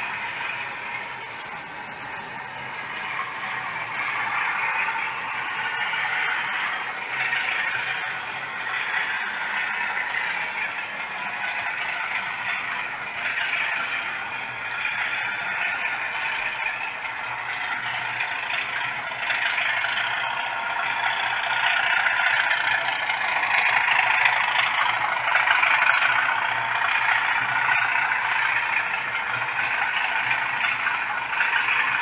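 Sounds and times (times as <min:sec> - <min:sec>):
model train wheels clattering: 0:00.0 - 0:32.0.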